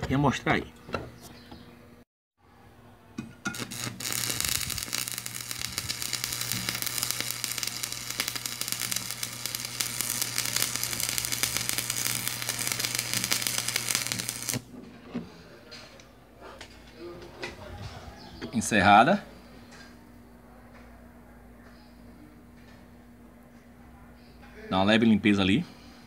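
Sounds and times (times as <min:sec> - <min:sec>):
arc welding crackle: 0:03.4 - 0:14.7
welding machine hum: 0:03.4 - 0:14.7.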